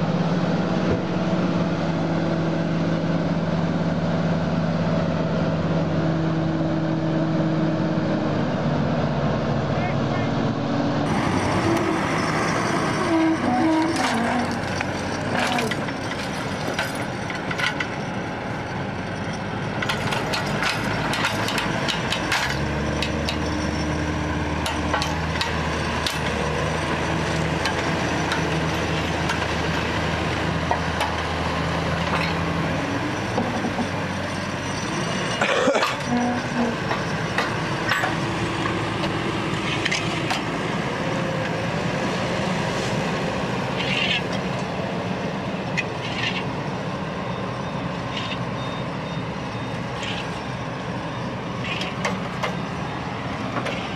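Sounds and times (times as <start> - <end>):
diesel engines under load: 0.0 - 53.9.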